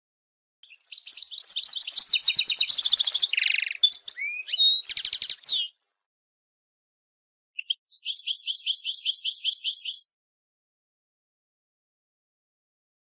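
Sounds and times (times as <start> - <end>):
goldfinch singing: 0.6 - 5.8, 7.6 - 10.2.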